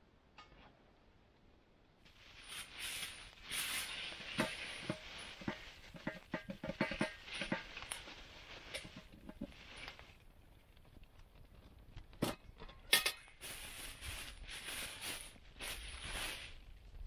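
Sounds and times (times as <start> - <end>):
plastic bag rustling: 2.1 - 10.4, 13.3 - 16.9
metal pot clanking: 4.2 - 9.9.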